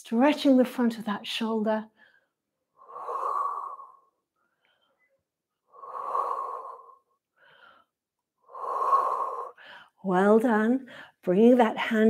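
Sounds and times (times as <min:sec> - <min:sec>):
woman breathing: 0:01.9 - 0:10.0, 0:10.9 - 0:11.2.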